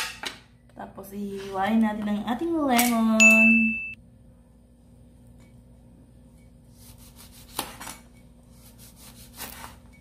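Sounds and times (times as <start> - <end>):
knife scraping: 6.6 - 10.0
knife slicing lemon: 6.7 - 10.0.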